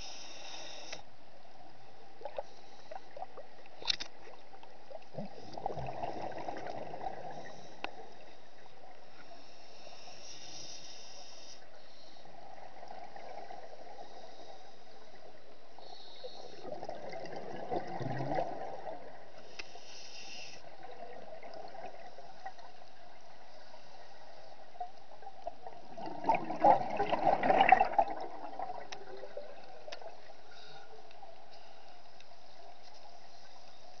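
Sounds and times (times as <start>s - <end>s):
steady underwater hiss: 0.0s - 34.0s
diver exhaling bubbles: 16.6s - 19.0s, 25.9s - 29.6s.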